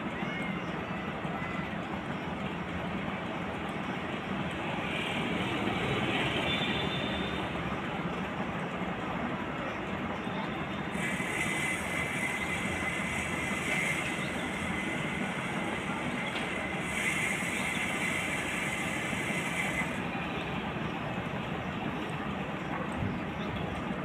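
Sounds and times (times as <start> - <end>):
combine harvester engine running: 6.7 - 24.0
high whine and hiss: 10.8 - 21.7.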